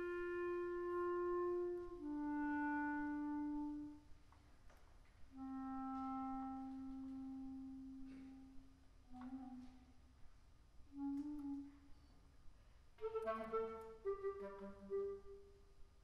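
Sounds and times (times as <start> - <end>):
clarinet long held notes: 0.0 - 4.1, 5.3 - 10.0, 10.9 - 12.0, 13.0 - 15.6.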